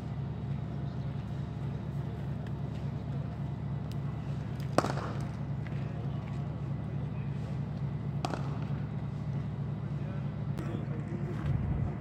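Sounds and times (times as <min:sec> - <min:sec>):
steady low rumble: 0:00.0 - 0:12.0
cricket bat striking ball: 0:04.7 - 0:05.4, 0:08.2 - 0:08.8.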